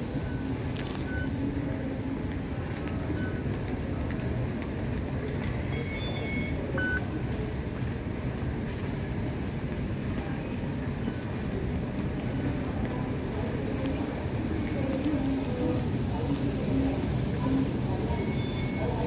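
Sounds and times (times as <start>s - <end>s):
low station rumble: 0.0s - 19.0s
short high electronic beeps: 5.7s - 7.0s.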